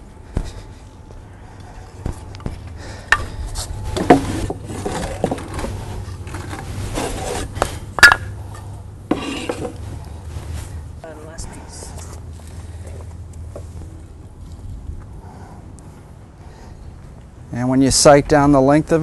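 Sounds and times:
wood scraping: 3.5 - 8.3, 9.1 - 10.8.

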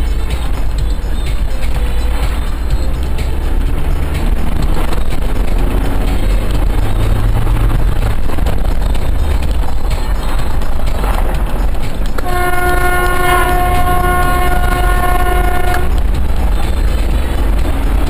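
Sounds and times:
moving vehicle rumble: 0.0 - 18.0
vehicle horn: 12.2 - 16.1.

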